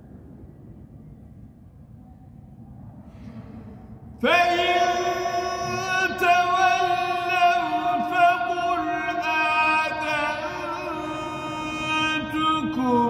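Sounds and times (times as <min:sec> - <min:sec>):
man reciting melodically: 0:04.2 - 0:13.0.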